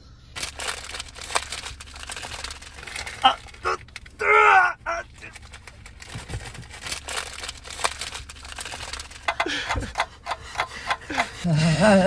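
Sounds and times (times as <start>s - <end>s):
crinkling and crackling clicks: 0.4s - 11.4s
strained vocal whimper: 11.1s - 12.0s.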